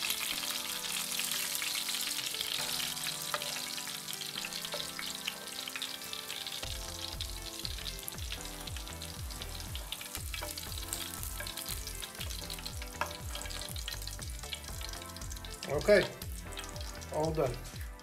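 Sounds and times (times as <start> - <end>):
fish frying in hot oil: 0.0 - 18.0
spoon scraping a pan: 2.8 - 5.3, 10.1 - 14.5
background music with bass beat: 6.7 - 18.0.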